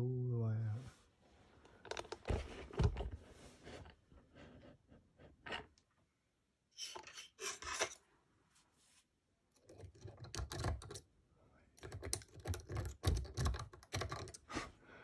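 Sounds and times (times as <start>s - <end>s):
metal pick scraping in lock: 6.8s - 8.0s.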